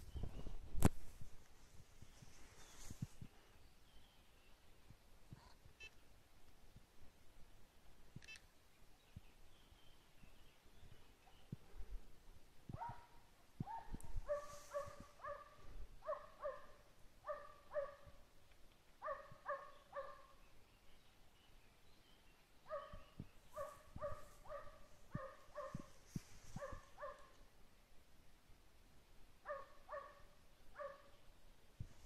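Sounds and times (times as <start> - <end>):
hound baying faintly: 12.7 - 18.2, 22.7 - 27.4, 29.5 - 31.2.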